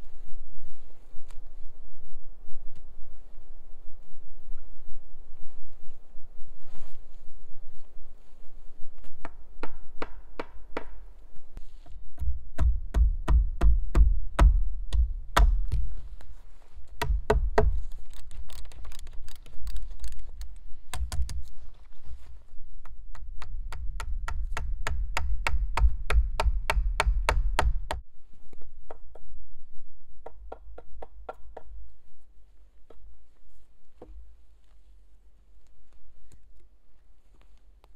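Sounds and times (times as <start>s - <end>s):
wooden poles bumping: 9.6s - 11.1s, 12.2s - 16.0s, 16.9s - 19.8s, 20.9s - 21.6s, 22.8s - 28.0s
hand auger drilling wood clicks: 17.0s - 21.5s.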